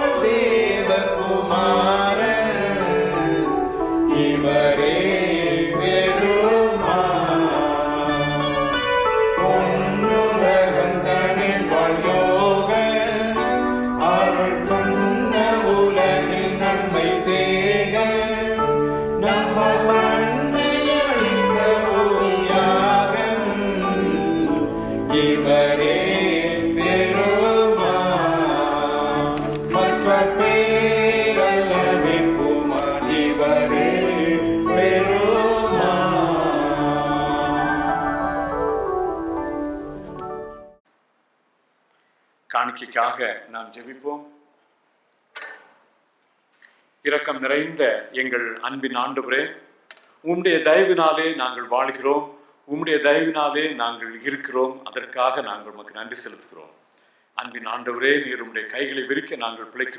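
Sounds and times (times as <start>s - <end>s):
hymn singing: 0.0s - 40.6s
instrumental accompaniment: 0.0s - 40.8s.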